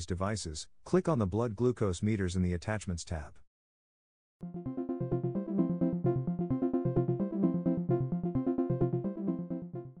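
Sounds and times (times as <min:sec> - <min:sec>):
background music with quick notes: 0:04.4 - 0:10.0.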